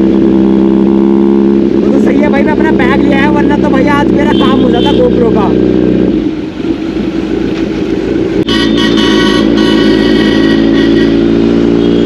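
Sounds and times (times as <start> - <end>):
motorcycle engine running: 0.0 - 12.0
road traffic: 0.0 - 12.0
vehicle horn honking: 4.1 - 5.3, 8.4 - 12.0.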